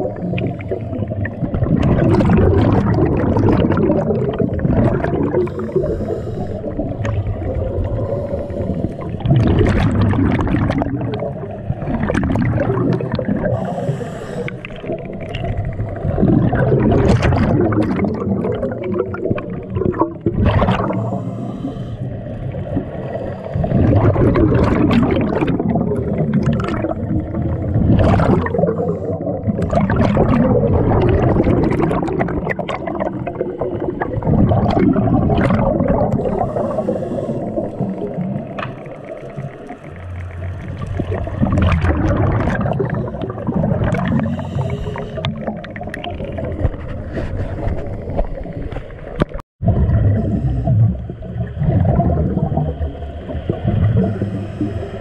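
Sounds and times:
air bubbles gurgling: 0.0s - 55.0s
diver breathing through regulator: 5.2s - 7.1s, 7.8s - 9.5s, 13.4s - 16.5s, 20.8s - 24.0s, 28.5s - 29.6s, 36.2s - 38.2s, 42.1s - 45.7s, 53.5s - 55.0s.

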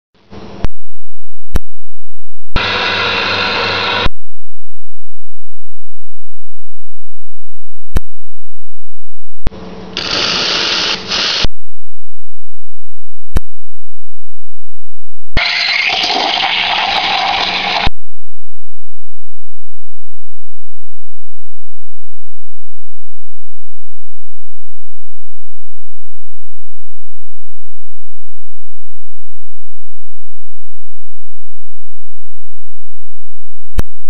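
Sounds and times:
loud steady electronic tone: 2.6s - 4.1s
steam wand hissing frothing milk: 10.0s - 11.5s, 15.4s - 17.9s.

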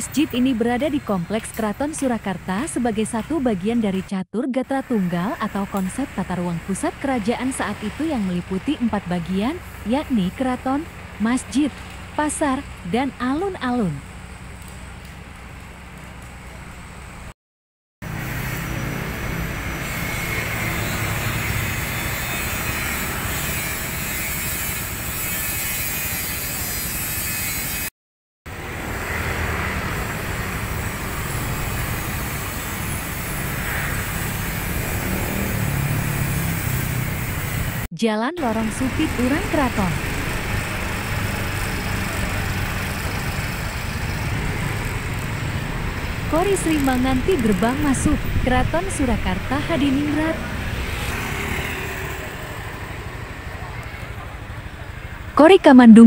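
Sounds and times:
traffic rumble: 0.0s - 4.1s, 4.7s - 17.3s, 28.5s - 56.0s
road noise: 0.0s - 17.4s, 18.0s - 27.9s, 28.5s - 56.0s
scooter engine running: 38.4s - 55.3s.

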